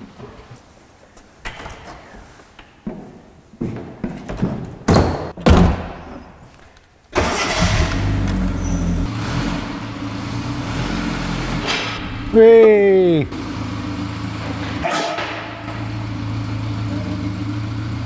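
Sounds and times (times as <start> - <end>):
car engine starting and idling: 7.1 - 18.0.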